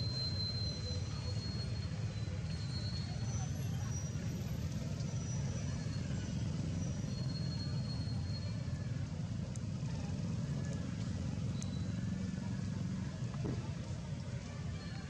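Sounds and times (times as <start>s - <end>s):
faint high whistles: 0.0s - 9.2s, 10.0s - 15.0s
low outdoor rumble: 0.0s - 15.0s.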